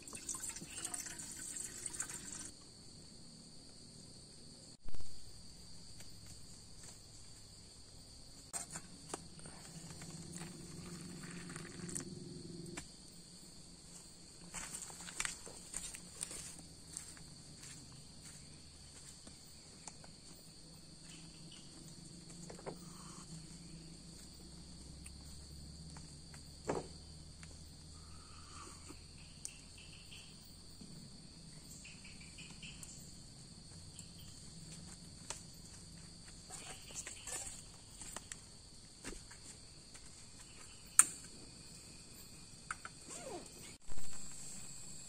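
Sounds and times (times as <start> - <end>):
insects chirping: 0.0 - 45.0.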